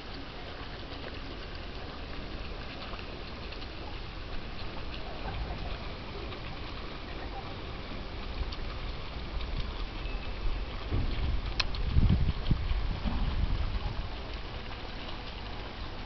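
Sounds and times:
fountain water splashing and trickling: 0.0 - 16.0
low rumble: 2.1 - 16.0.

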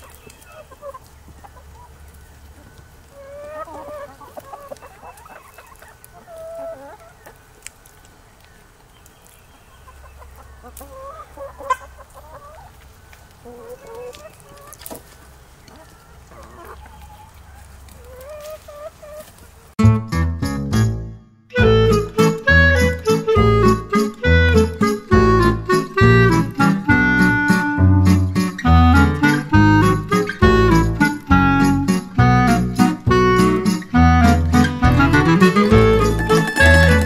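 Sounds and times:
chickens clucking: 0.0 - 19.8, 22.0 - 37.0.

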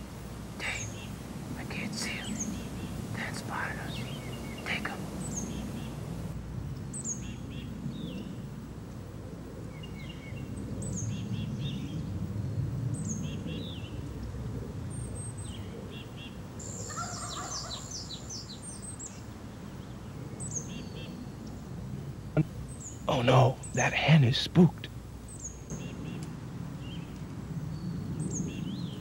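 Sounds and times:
songbirds calling: 0.0 - 29.0.

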